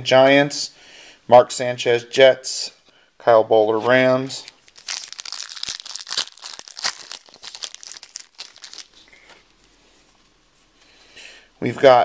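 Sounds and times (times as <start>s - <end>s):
foil wrapper tearing and crinkling: 4.6s - 9.0s.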